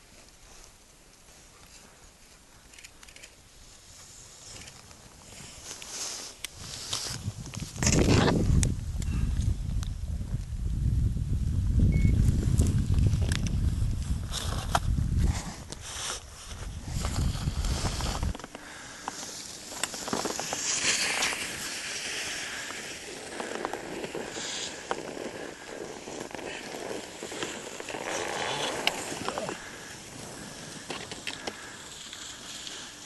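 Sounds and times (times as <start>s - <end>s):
snow crunching underfoot and skis: 3.4s - 8.6s, 12.2s - 33.0s
wind rumble on microphone: 6.6s - 18.5s
hiss: 19.1s - 33.0s.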